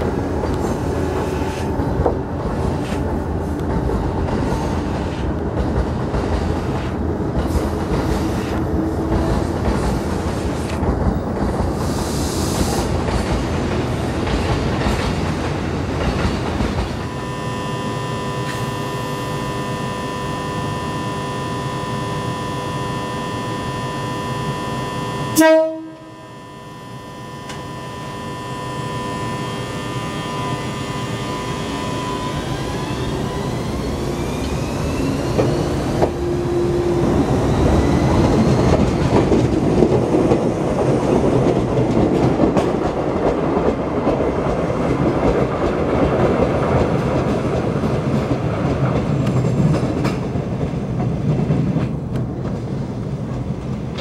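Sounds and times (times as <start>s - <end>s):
train horn blast: 0.0s - 3.0s, 16.8s - 34.0s
train motors whining: 0.0s - 10.8s, 12.6s - 42.6s
train wheels clattering: 0.0s - 17.0s, 32.3s - 54.0s
electric train humming: 0.0s - 54.0s.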